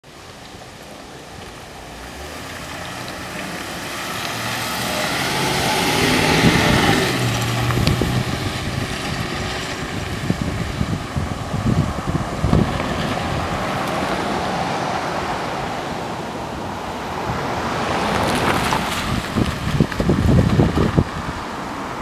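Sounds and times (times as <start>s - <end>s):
vehicle engine and tyres passing: 0.1s - 22.0s.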